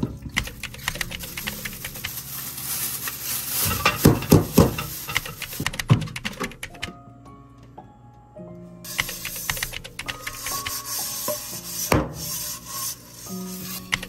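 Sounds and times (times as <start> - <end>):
soft background music: 0.0 - 14.0
sizzling hiss: 1.1 - 5.7, 8.9 - 14.0
utensil stirring and knocking pan: 3.6 - 6.0, 8.9 - 14.0.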